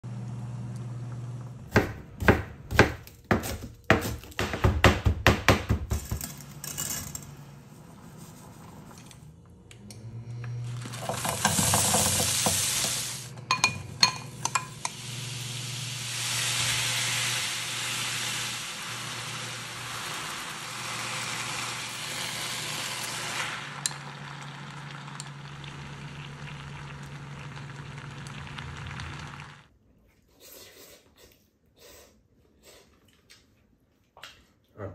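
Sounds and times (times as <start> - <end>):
food sizzling in hot oil: 10.7 - 13.4, 14.0 - 29.7.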